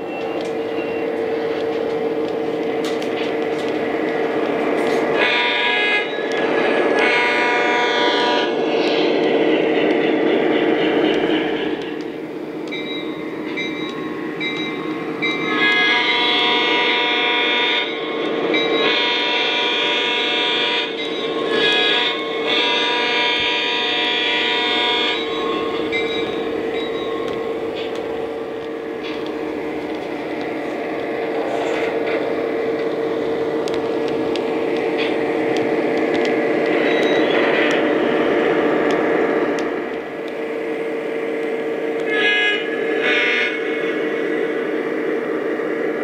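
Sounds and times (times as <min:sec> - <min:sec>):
model train engine drone: 0:00.0 - 0:46.0
train horn blasts: 0:05.1 - 0:08.6, 0:15.4 - 0:29.6, 0:42.0 - 0:44.2.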